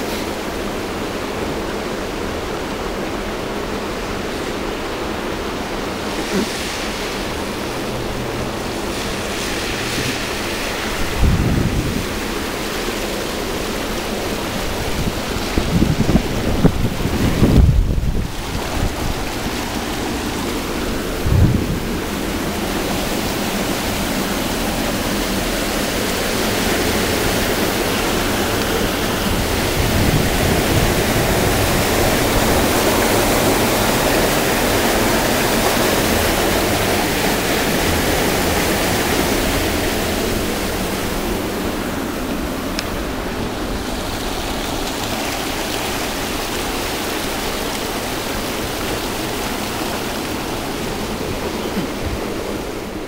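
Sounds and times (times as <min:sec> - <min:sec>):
falling rain: 0:00.0 - 0:53.0
rainwater rushing along gutter: 0:00.0 - 0:53.0
wind gust on microphone: 0:06.3 - 0:13.5, 0:14.2 - 0:45.7.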